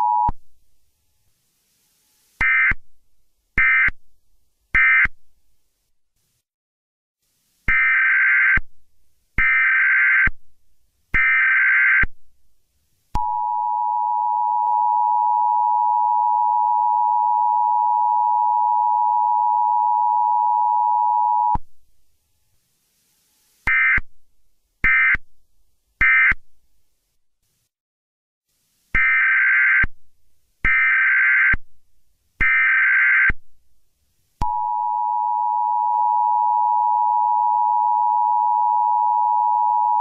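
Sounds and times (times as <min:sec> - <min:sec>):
steady lower electronic tone: 0:13.2 - 0:21.6, 0:34.4 - 0:40.0.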